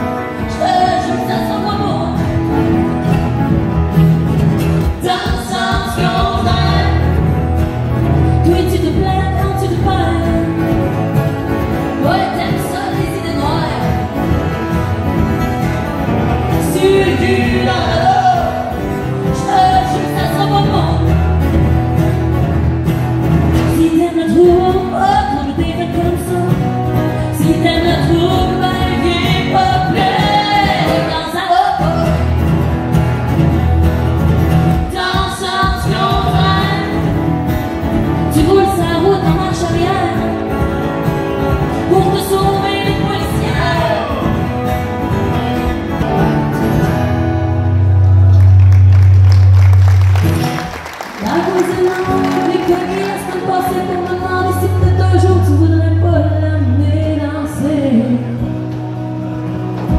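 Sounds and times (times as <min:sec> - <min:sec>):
strummed acoustic guitars: 0:00.0 - 0:59.9
woman singing: 0:00.2 - 0:02.4, 0:04.8 - 0:07.4, 0:08.1 - 0:11.0, 0:11.9 - 0:14.2, 0:16.5 - 0:21.2, 0:23.6 - 0:32.3, 0:34.8 - 0:37.2, 0:38.2 - 0:40.8, 0:41.6 - 0:44.3, 0:51.2 - 0:58.8.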